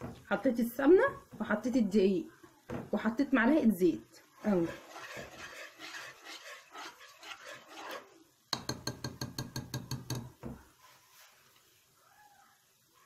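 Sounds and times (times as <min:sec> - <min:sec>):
whisk stirring roux in metal pot: 0:04.3 - 0:10.2
whisk clinking against pot: 0:04.6 - 0:10.3.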